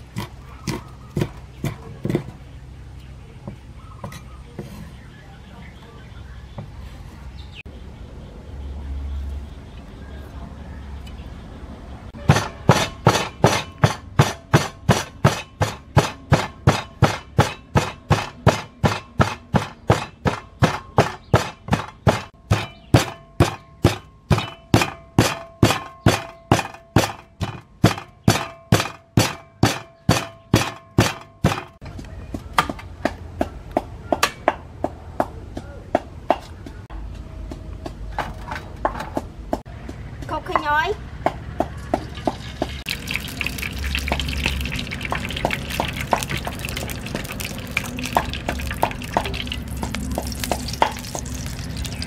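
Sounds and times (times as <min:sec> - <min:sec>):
pestle pounding in wooden mortar: 0:00.0 - 0:02.5, 0:12.2 - 0:36.4, 0:38.8 - 0:52.0.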